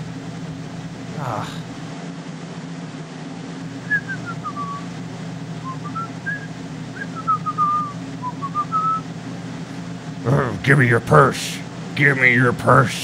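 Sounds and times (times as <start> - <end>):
steady low hum: 0.0 - 13.0
person whistling a tune: 3.9 - 4.8, 5.6 - 9.0.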